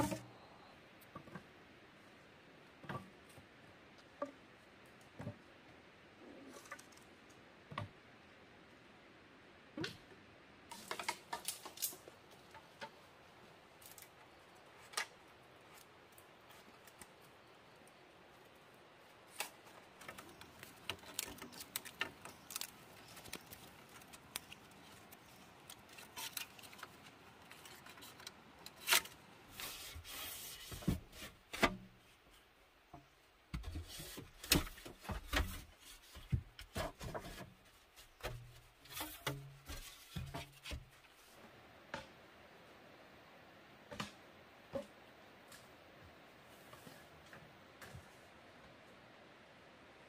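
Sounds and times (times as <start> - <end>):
bamboo poles knocking: 0.0 - 0.3
cord scraping on bamboo: 0.0 - 0.3, 19.3 - 31.8, 33.6 - 41.3.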